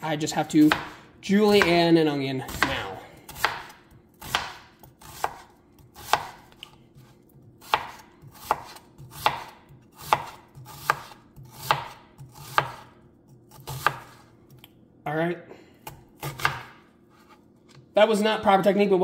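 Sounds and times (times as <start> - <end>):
knife slicing onion on board: 0.6 - 1.8, 2.5 - 14.6, 15.9 - 17.4.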